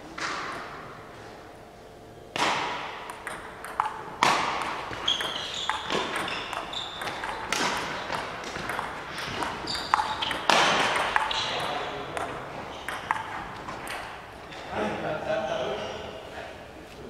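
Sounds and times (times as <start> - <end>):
table tennis ball clicking: 3.0 - 14.2
shoes squeaking on floor: 4.8 - 12.0, 12.6 - 13.0.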